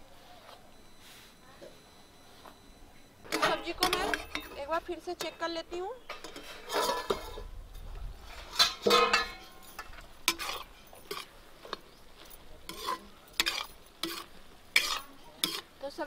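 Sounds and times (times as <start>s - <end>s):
ladle clinking and scraping pan: 3.3s - 5.4s, 6.0s - 7.5s, 8.3s - 11.9s, 12.6s - 15.8s.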